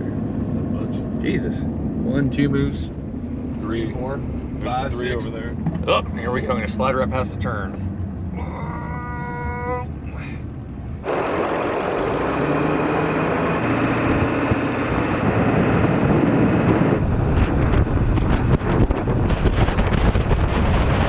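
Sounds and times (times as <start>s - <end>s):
vehicle engine and tyre noise: 0.0s - 21.0s
wind buffeting microphone: 9.3s - 21.0s.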